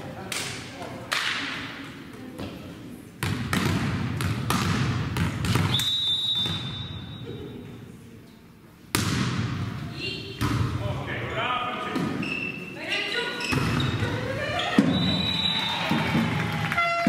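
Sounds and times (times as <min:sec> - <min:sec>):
volleyball bouncing on gym floor: 0:00.3 - 0:07.0, 0:08.9 - 0:10.8, 0:13.4 - 0:16.3
referee's whistle: 0:05.7 - 0:07.2, 0:14.8 - 0:15.9.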